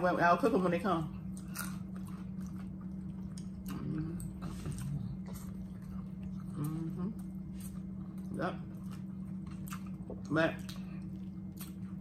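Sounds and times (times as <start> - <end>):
steady low hum: 0.0 - 12.0
chewing and mouth clicks: 1.2 - 12.0
person humming mm: 6.6 - 7.2.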